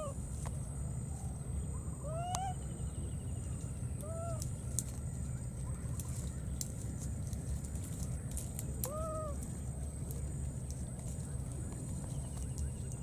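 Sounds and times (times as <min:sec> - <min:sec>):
baby monkey coo calls: 0:00.0 - 0:00.2, 0:01.2 - 0:03.0, 0:04.0 - 0:04.5, 0:08.8 - 0:09.5.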